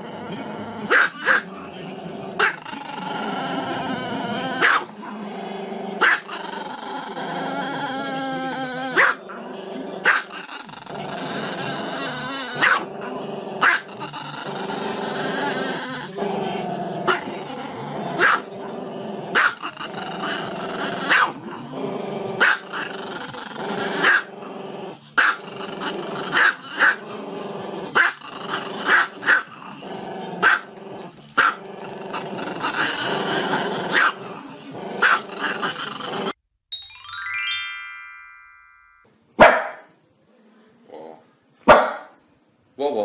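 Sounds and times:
dog barking: 0.9s - 1.4s, 4.6s - 4.9s, 6.0s - 6.3s, 9.0s - 9.2s, 10.0s - 10.3s, 12.6s - 12.9s, 13.6s - 13.9s, 18.2s - 18.5s, 19.4s - 19.6s, 21.1s - 21.4s, 22.4s - 22.6s, 24.0s - 24.3s, 25.2s - 25.4s, 28.9s - 29.5s, 30.4s - 30.7s, 33.9s - 34.2s, 35.0s - 35.2s, 39.4s - 39.9s, 41.7s - 42.2s.

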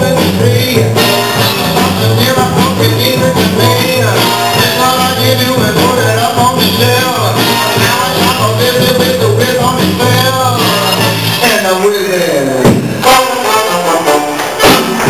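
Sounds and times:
loud music with bass beat: 0.0s - 11.4s.

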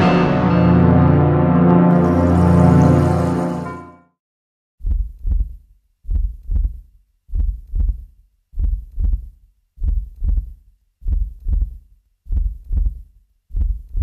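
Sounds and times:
heartbeat thumps: 4.8s - 14.0s.

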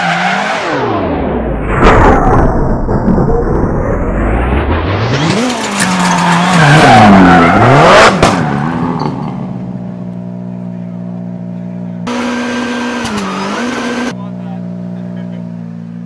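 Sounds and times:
rally car engine revving: 3.2s - 9.6s, 12.0s - 14.2s.

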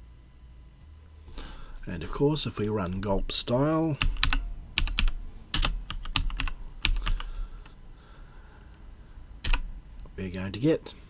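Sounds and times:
typing on keyboard: 4.0s - 7.3s.

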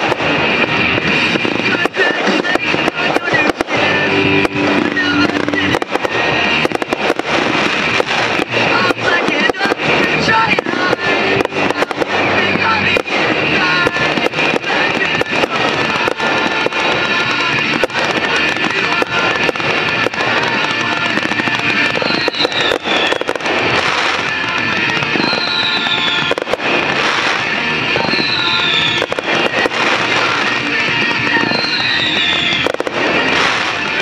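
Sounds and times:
fireworks bursting and cracking: 0.0s - 34.0s
music playing: 0.0s - 34.0s.

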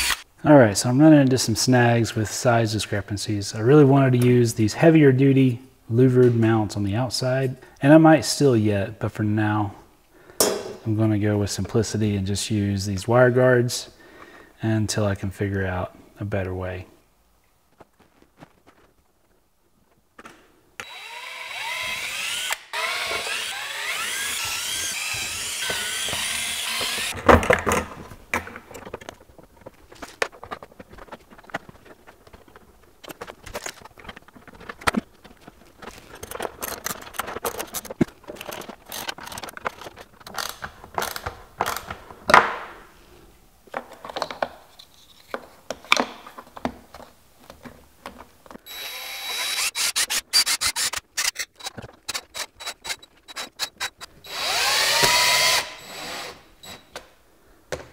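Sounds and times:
cordless drill drilling into plastic: 20.8s - 27.2s, 48.7s - 56.8s
parts and screws clicking and rattling: 21.6s - 42.3s, 43.7s - 57.1s.

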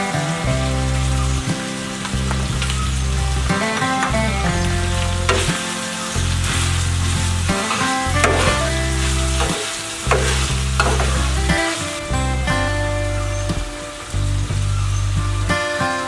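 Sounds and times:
background music with low notes: 0.0s - 16.0s
meat sizzling in a pan: 0.0s - 16.0s
metal spatula scraping a pan: 5.0s - 11.9s.

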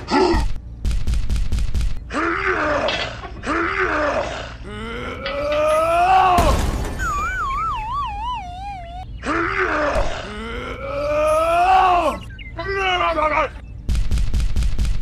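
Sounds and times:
cartoon groaning grunts: 3.8s - 6.1s, 8.2s - 11.4s
wobbling sinking tone: 7.0s - 9.0s.

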